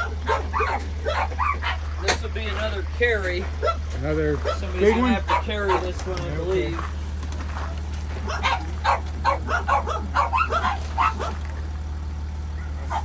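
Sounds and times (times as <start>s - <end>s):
dogs barking: 0.0s - 2.2s, 3.4s - 6.3s, 7.5s - 11.8s, 12.4s - 13.0s.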